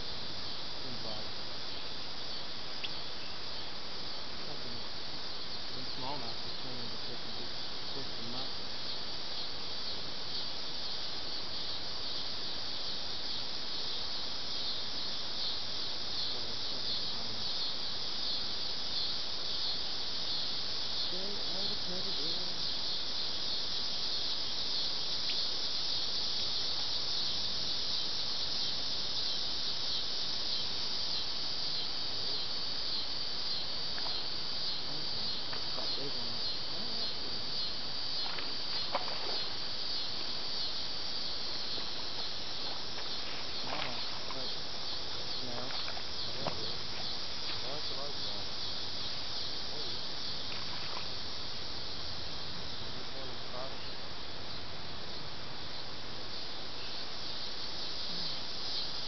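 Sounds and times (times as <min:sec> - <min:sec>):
shrill insect chorus: 0:00.0 - 0:59.0.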